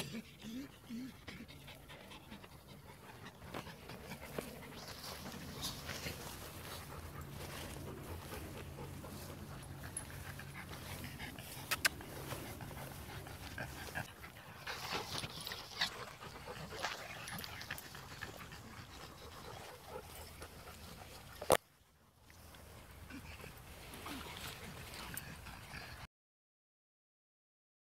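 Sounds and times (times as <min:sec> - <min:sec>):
dogs panting: 0:00.0 - 0:21.6, 0:22.4 - 0:26.1
brushing through grass: 0:04.3 - 0:14.0.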